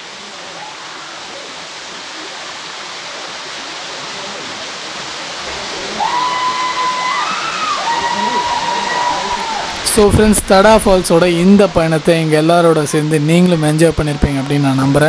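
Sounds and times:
waterfall and stream rushing: 0:00.0 - 0:15.0.

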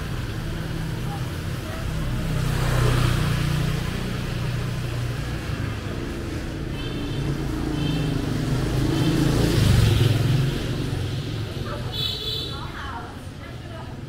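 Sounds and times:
vehicle engines humming: 0:00.0 - 0:14.0.

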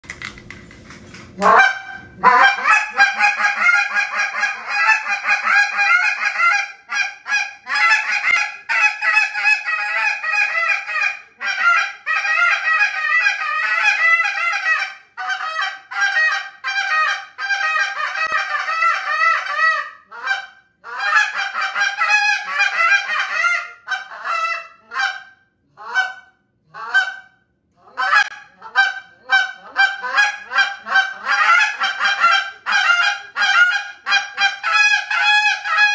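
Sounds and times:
goose call honks and clucks: 0:01.4 - 0:35.9.

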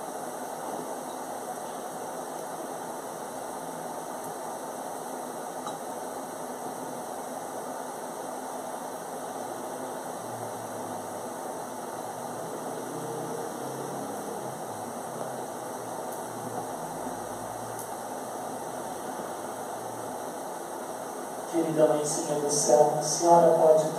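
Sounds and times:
steady background hiss and hum: 0:00.0 - 0:23.9.

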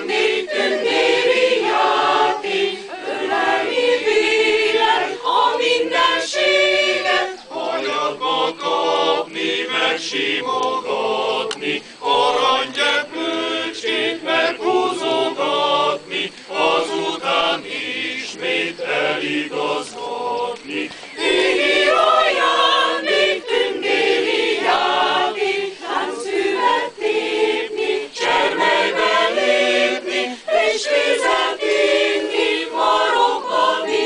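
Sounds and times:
mixed choir singing a cappella: 0:00.0 - 0:34.0
singers breathing: 0:11.8 - 0:12.0, 0:20.8 - 0:21.2, 0:30.2 - 0:30.6.

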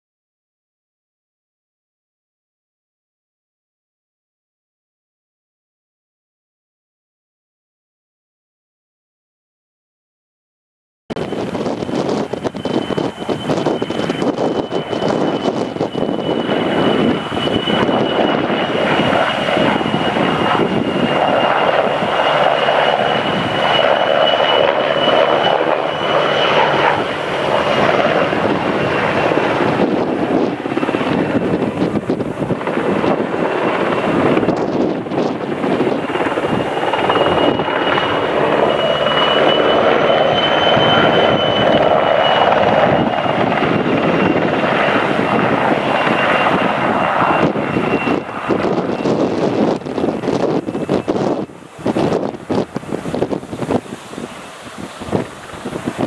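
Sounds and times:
helicopter rotor noise: 0:11.2 - 0:56.0
helicopter turbine whine: 0:11.2 - 0:56.0.

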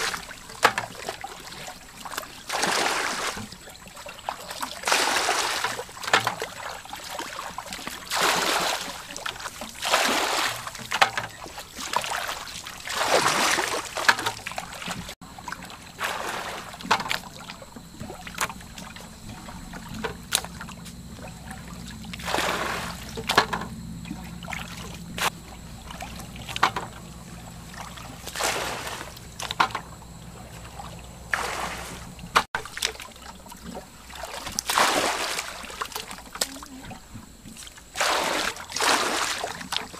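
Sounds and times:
muddy water splashing: 0:00.0 - 0:39.9
faint low hum: 0:03.2 - 0:34.6.

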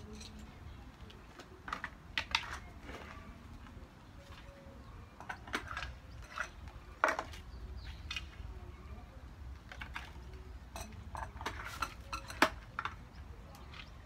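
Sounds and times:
plastic and metal parts clattering: 0:05.2 - 0:07.4.

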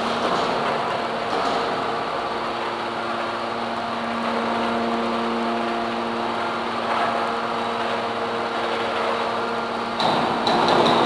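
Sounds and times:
hydraulic power unit humming: 0:00.0 - 0:11.0.

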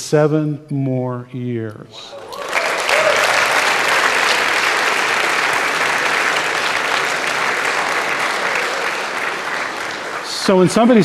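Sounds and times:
audience applauding: 0:02.1 - 0:11.0.

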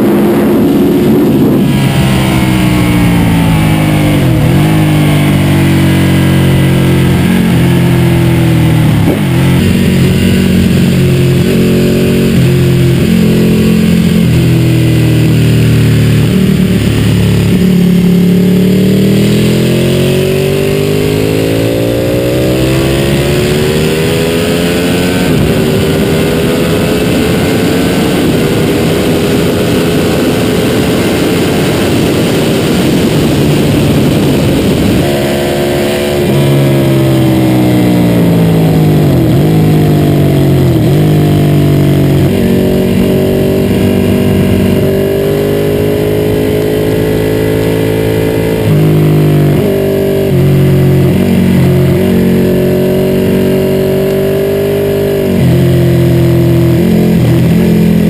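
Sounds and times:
wind rush: 0:00.0 - 0:48.8
motorcycle engine accelerating: 0:00.0 - 0:58.0.

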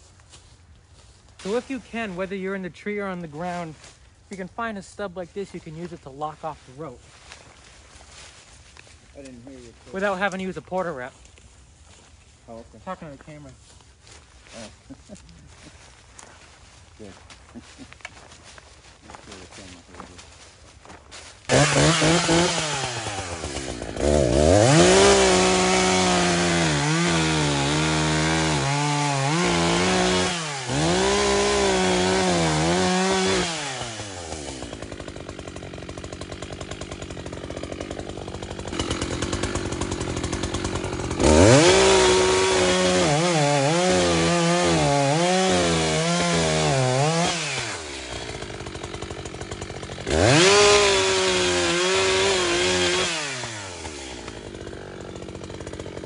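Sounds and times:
chainsaw cutting wood: 0:01.4 - 0:16.5, 0:17.2 - 0:56.0.

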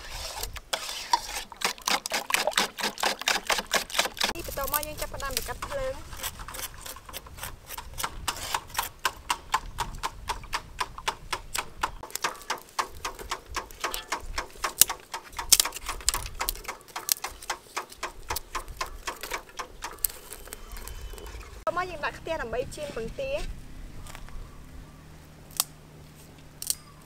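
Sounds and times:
twigs crackling in fire: 0:01.6 - 0:08.0, 0:12.0 - 0:21.7.

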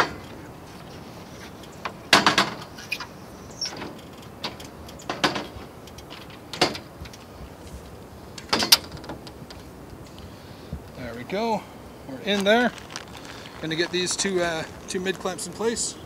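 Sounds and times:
metal panel clunking on rails: 0:00.0 - 0:00.5, 0:01.8 - 0:07.2, 0:08.4 - 0:09.4.

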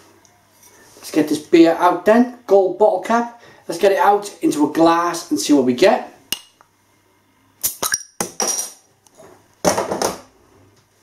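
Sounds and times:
bottle opener removing bottle cap: 0:07.6 - 0:08.8.

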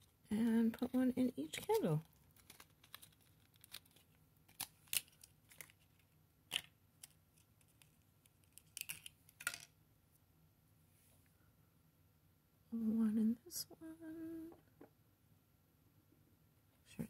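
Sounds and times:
thin plastic crinkling: 0:00.7 - 0:09.7.

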